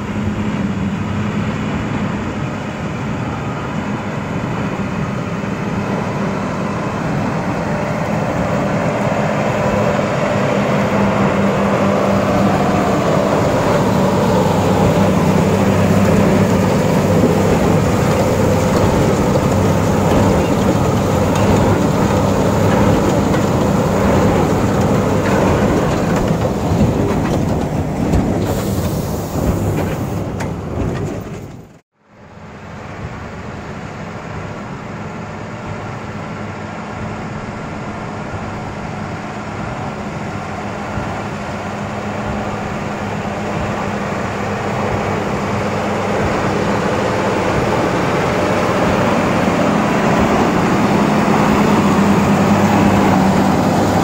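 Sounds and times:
tractor engine droning under load: 0.0 - 54.0
baler mechanical clatter: 10.9 - 31.8.

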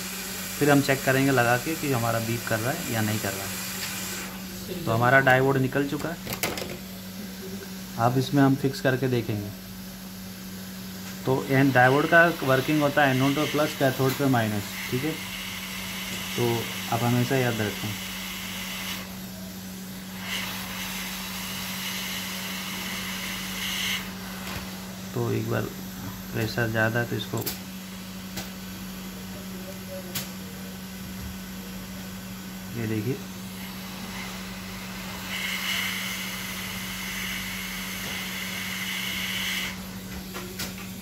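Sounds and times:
hot-air nozzle hiss: 0.0 - 5.8, 10.0 - 19.3, 20.0 - 28.8, 32.9 - 40.1.

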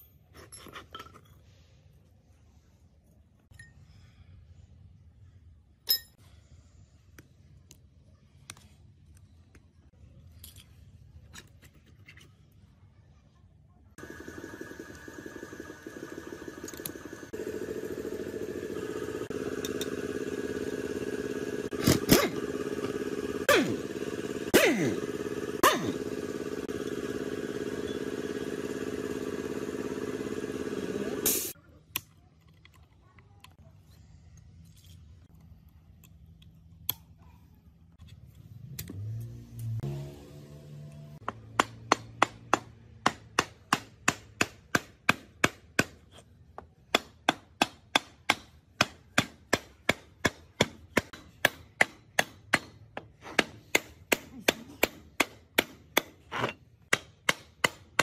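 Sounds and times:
machine hum: 14.0 - 31.6.

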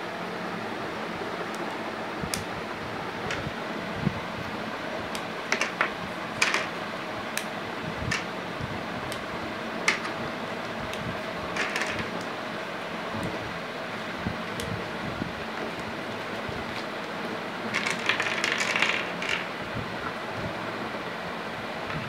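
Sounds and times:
plastic blocks clicking together: 5.5 - 6.7, 9.9 - 10.1, 11.6 - 12.3, 17.7 - 19.5.

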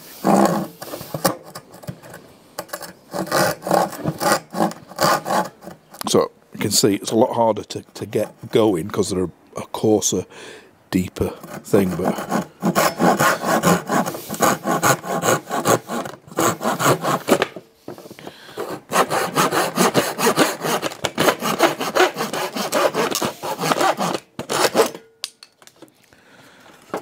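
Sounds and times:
hand saw cutting wood: 0.0 - 1.9, 2.6 - 5.9, 11.2 - 25.0.

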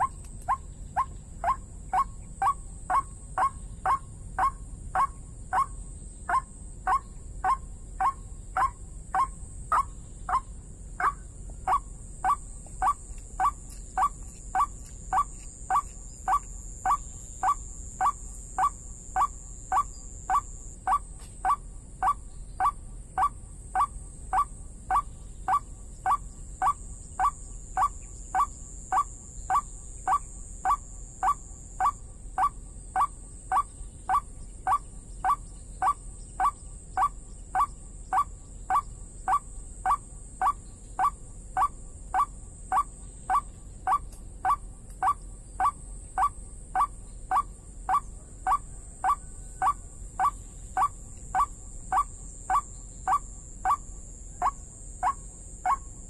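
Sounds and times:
recorded bird call repeating: 0.0 - 55.9.

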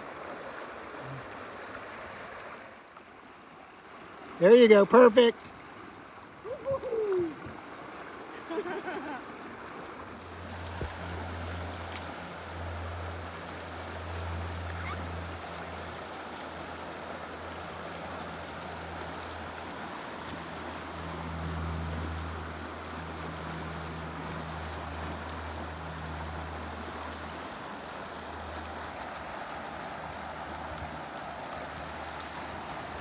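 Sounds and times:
river rushing through rapids: 10.0 - 33.0
steady low hum: 10.1 - 33.0.

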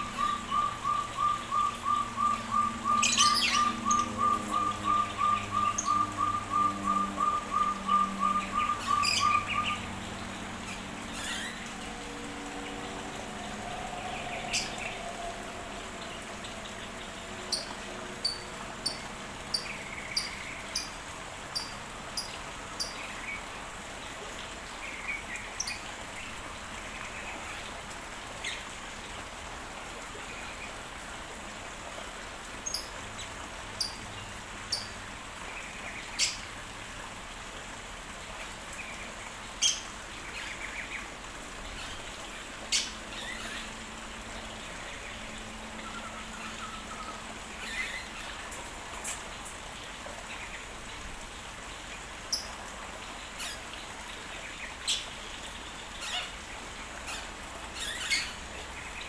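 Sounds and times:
high-pitched bird calls: 0.0 - 9.8, 13.2 - 15.8
background hiss: 0.0 - 59.0.

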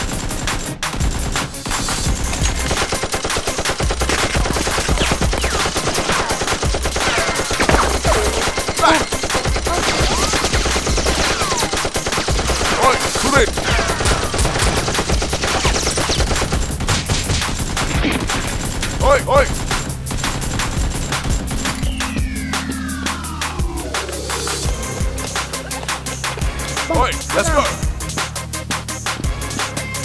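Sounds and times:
automatic gunfire: 2.6 - 18.1.

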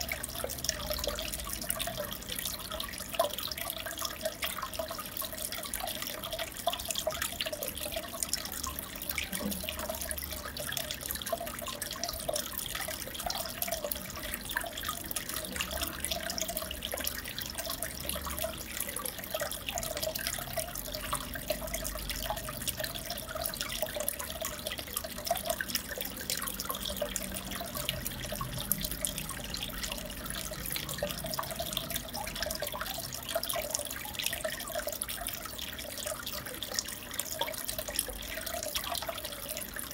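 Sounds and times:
aquarium water bubbling: 0.0 - 39.9.

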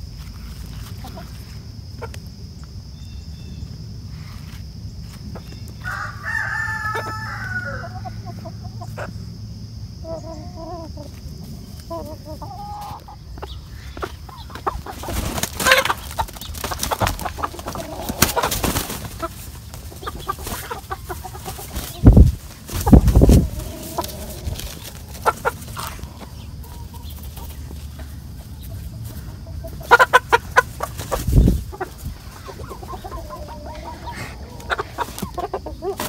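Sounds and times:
chickens clucking: 0.2 - 36.0
chicken squawk: 5.8 - 9.2, 10.0 - 11.2, 11.8 - 16.3, 16.9 - 27.5, 28.7 - 36.0
wings flapping: 14.9 - 26.2.

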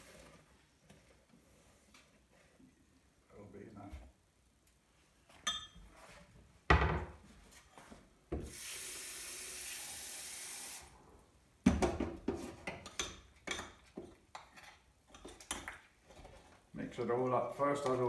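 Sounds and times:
kitchen tap running: 8.4 - 10.9.

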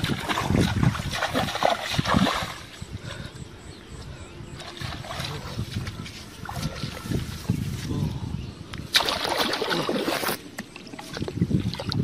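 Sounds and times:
feet wading through muddy water: 0.0 - 2.8, 4.6 - 7.9, 8.9 - 12.0.

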